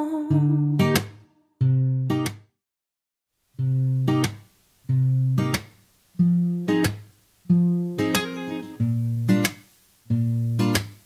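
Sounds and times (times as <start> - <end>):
acoustic guitar chords: 0.0 - 2.5, 3.6 - 11.0
faint tape hiss: 3.3 - 11.0.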